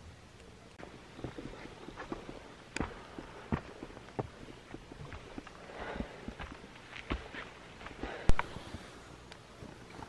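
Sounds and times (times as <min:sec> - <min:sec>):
footsteps walking: 0:01.2 - 0:08.9.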